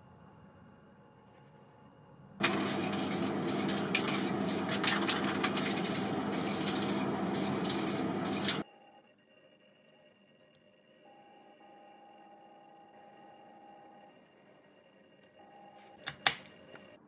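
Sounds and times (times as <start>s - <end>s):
aerosol spray can hissing: 2.4s - 8.6s.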